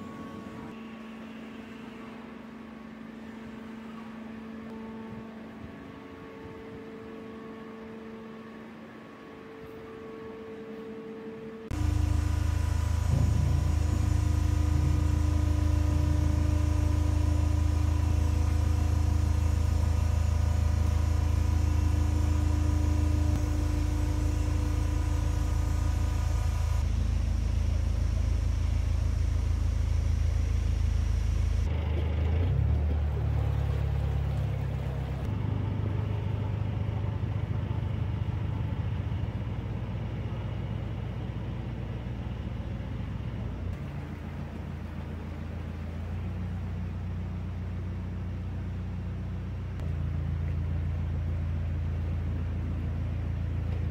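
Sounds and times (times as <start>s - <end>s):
diesel engine idling: 11.7s - 53.9s.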